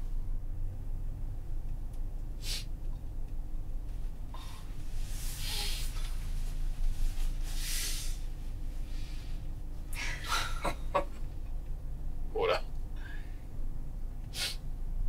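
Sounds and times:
steady low hum: 0.0s - 15.0s
heavy breathing: 4.3s - 6.3s, 13.0s - 13.5s.

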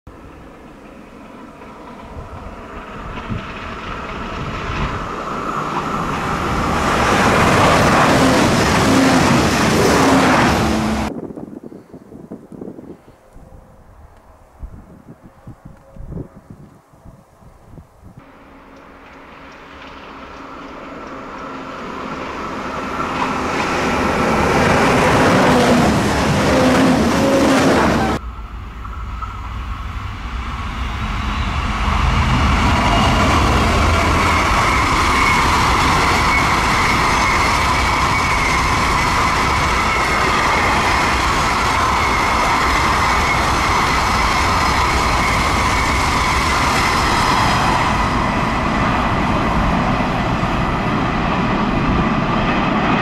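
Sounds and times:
diesel train approaching: 0.1s - 11.2s, 12.6s - 53.0s.

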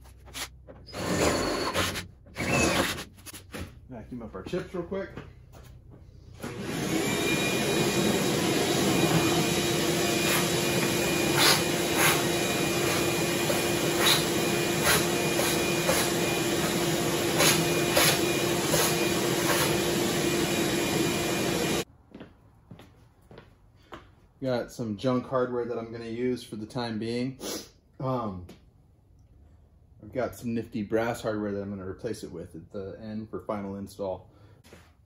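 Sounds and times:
shop vacuum running: 0.3s - 3.0s, 3.6s - 21.9s.

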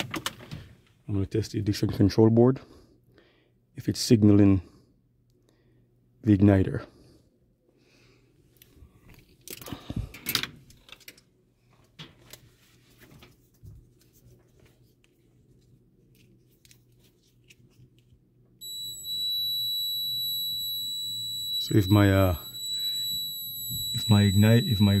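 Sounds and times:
multimeter continuity beep: 18.6s - 25.0s.

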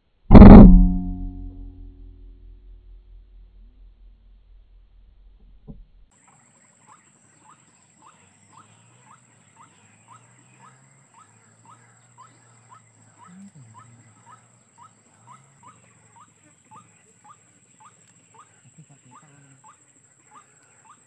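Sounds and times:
steady high whine: 0.3s - 6.0s.

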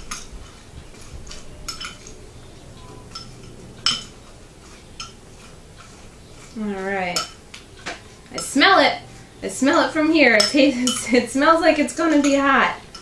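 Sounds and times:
metal spoon clinking glass bowl: 0.0s - 6.0s, 7.1s - 7.4s, 9.6s - 11.3s, 12.0s - 13.0s.

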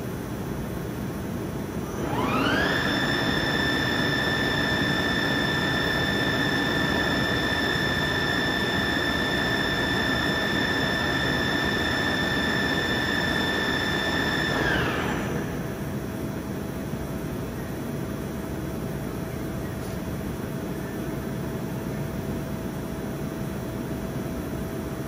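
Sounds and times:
boring mill whining: 1.8s - 16.5s.

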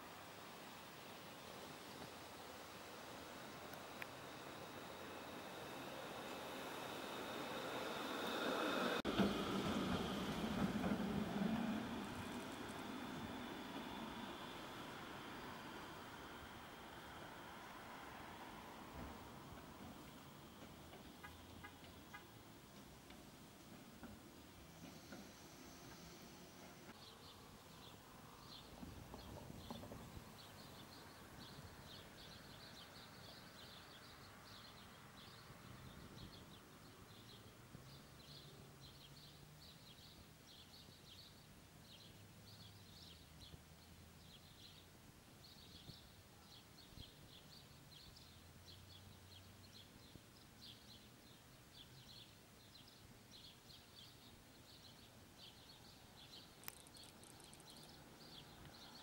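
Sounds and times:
low hum: 2.5s - 21.7s
small birds chirping: 24.8s - 59.0s.

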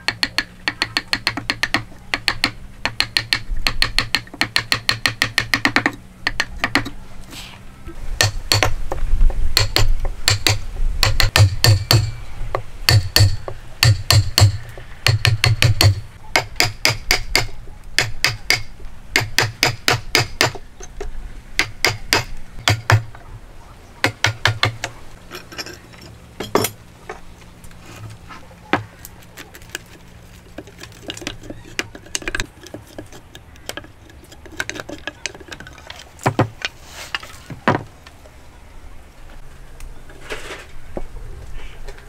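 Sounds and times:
hammer striking wood chisel: 0.0s - 7.0s, 8.2s - 12.1s, 12.9s - 20.6s, 21.6s - 23.1s, 24.0s - 24.9s.

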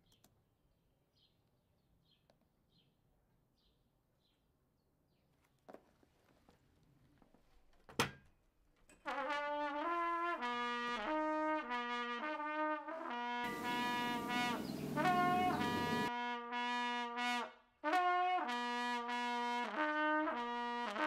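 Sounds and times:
trumpet-led brass melody: 9.0s - 21.0s
hissing cymbal wash: 13.5s - 16.1s.

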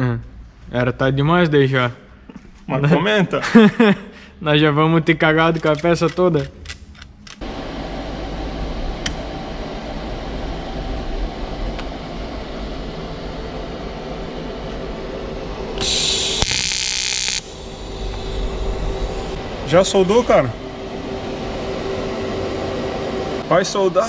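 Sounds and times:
steady hum: 7.4s - 24.0s
welding arc hiss: 15.8s - 20.3s.

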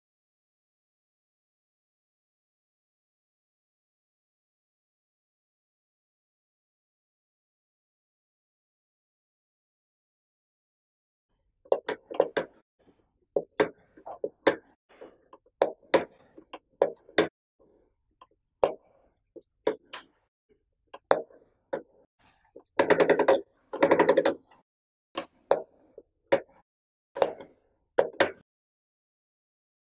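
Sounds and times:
rapid rattle of clicks: 22.8s - 24.6s.

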